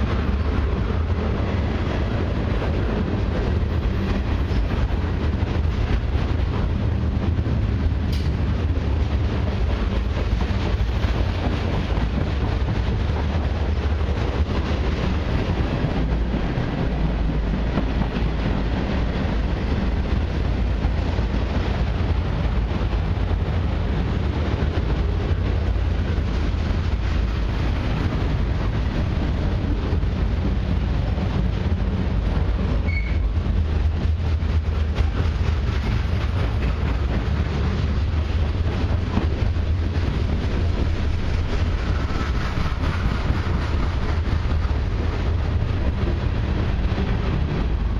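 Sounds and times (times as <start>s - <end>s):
train wheels rumbling on rail: 0.0s - 47.9s
high-pitched squeak: 32.9s - 33.2s.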